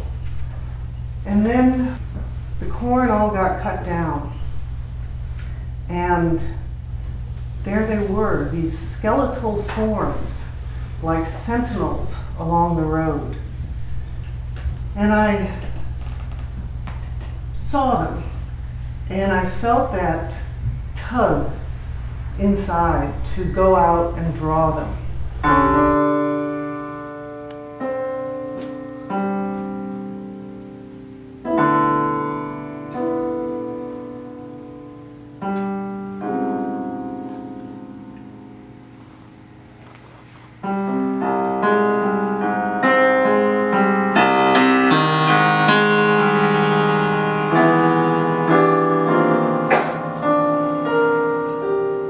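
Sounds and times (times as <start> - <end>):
digital piano chords: 21.4 - 39.9, 40.5 - 52.0.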